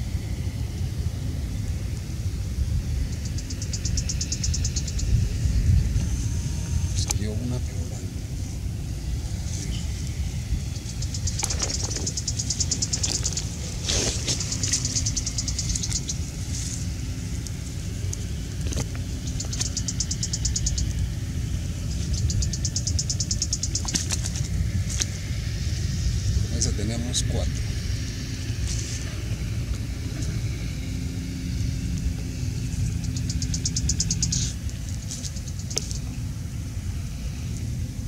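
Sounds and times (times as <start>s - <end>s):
high-pitched insect trilling: 0.0s - 38.0s
wind buffeting microphone: 0.0s - 38.0s.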